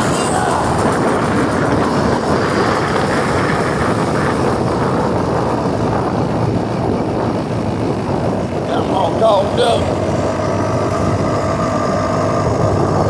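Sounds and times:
wind noise on microphone: 0:00.0 - 0:13.0.

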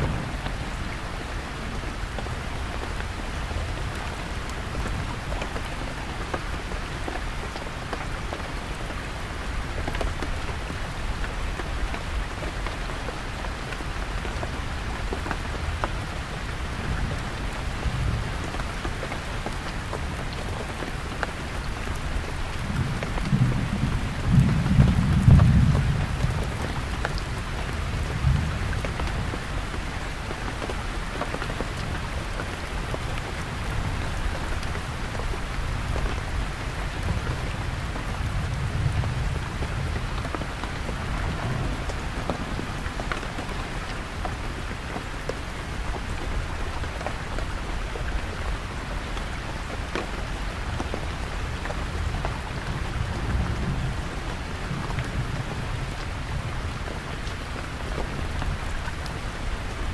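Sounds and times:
distant thunder rumble: 0:00.0 - 0:02.2, 0:37.0 - 0:44.3
heavy rain on tent: 0:00.0 - 0:59.9.

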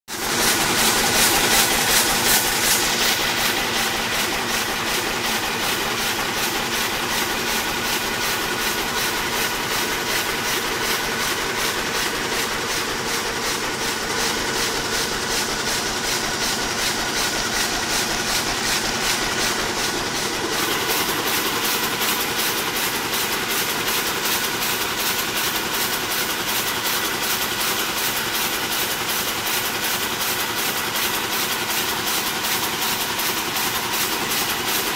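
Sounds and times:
machine whine: 0:00.1 - 0:23.6
loom mechanical clatter: 0:00.1 - 0:34.9.

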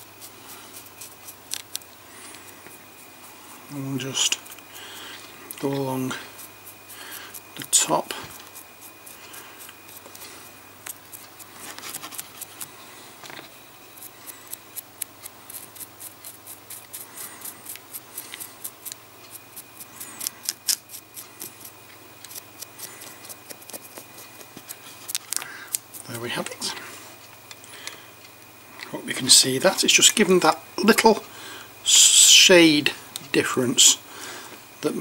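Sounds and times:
paintbrush bristles scratching: 0:00.0 - 0:13.1, 0:14.0 - 0:27.2.

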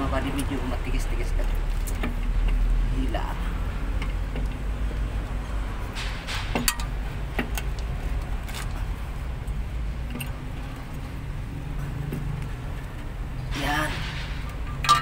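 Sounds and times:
wrench clinking against a nut: 0:10.1 - 0:11.0.

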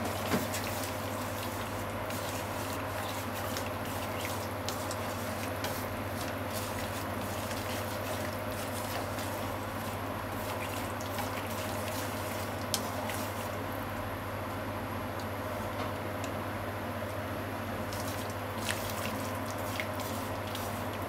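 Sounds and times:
meat bubbling in frying pan: 0:00.0 - 0:14.4, 0:17.8 - 0:21.0.

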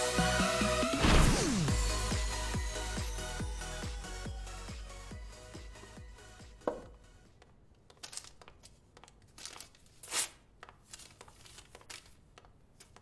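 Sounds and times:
music: 0:00.0 - 0:07.4
paper packet crinkling: 0:07.9 - 0:13.0
paper tearing: 0:09.3 - 0:12.2.

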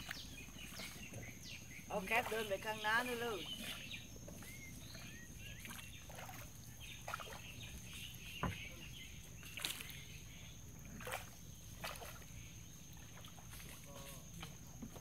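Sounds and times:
birds chirping and calling: 0:00.0 - 0:10.7.

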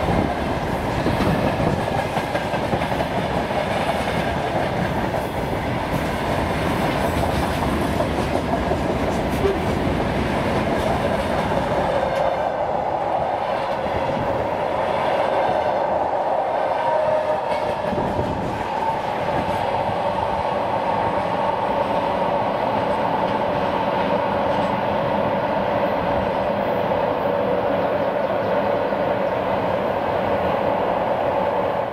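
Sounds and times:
train wheels clattering over rail joints: 0:00.0 - 0:12.3.

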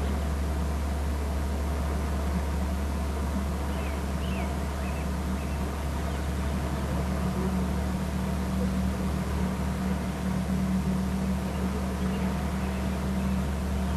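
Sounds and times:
constant hiss: 0:00.0 - 0:13.9
steady low hum: 0:00.0 - 0:13.9.

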